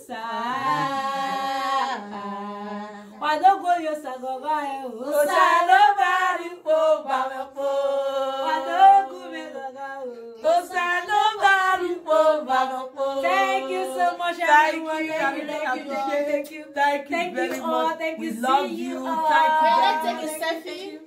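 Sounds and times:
women singing without instruments: 0.0 - 20.6.

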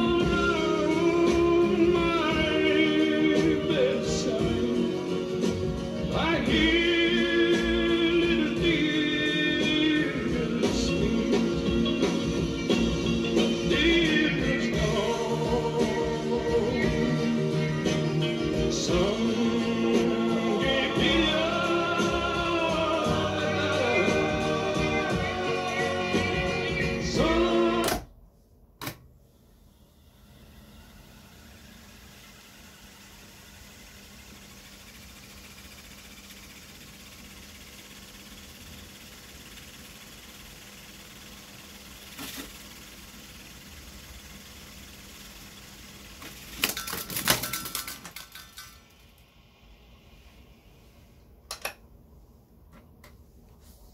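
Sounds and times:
tape reels whirring: 0.0 - 28.1, 29.4 - 49.8
song with singing: 0.0 - 28.2
tape tail flapping against machine: 45.3 - 49.0.

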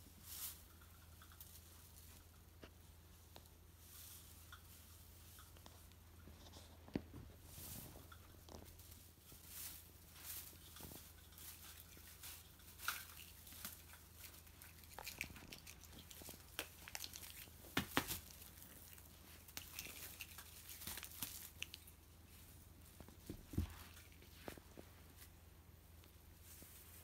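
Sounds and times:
metallic streamers rustling: 7.5 - 22.6.

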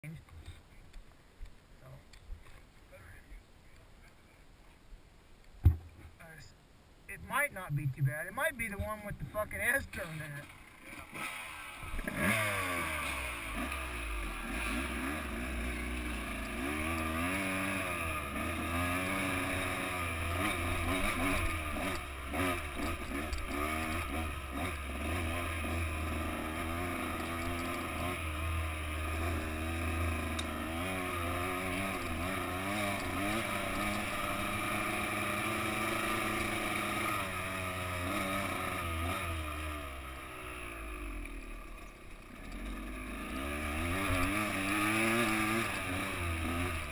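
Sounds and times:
dirt bike engine revving: 9.6 - 46.9.

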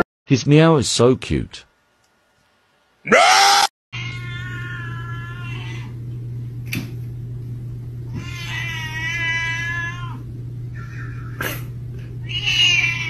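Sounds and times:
cat meowing: 4.0 - 6.0, 8.1 - 11.4, 12.2 - 13.0
steady low hum: 4.0 - 13.0.

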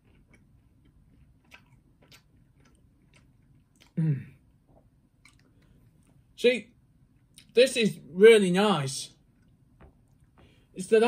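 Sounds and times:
person chewing toast: 0.0 - 6.2.

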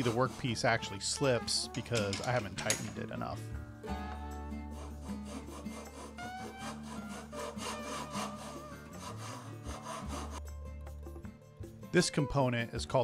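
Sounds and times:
hand file rasping on wood: 0.0 - 1.6, 4.4 - 10.4.

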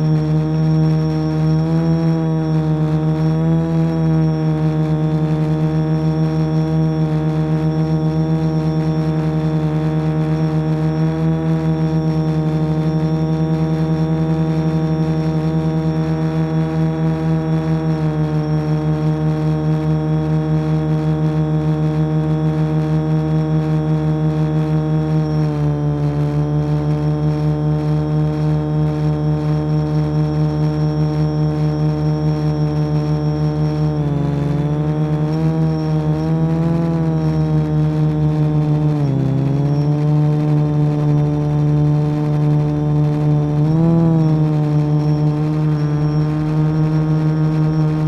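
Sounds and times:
drone propellers humming: 0.0 - 48.0.

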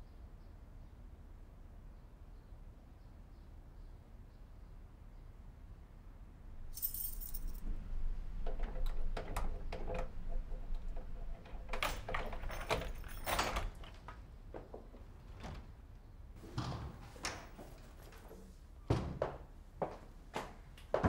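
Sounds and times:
keys jangling in door lock: 6.7 - 14.2.

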